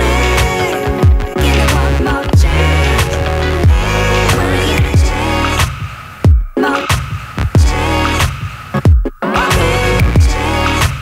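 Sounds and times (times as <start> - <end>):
deep bass drum hits: 3.6 - 5.2.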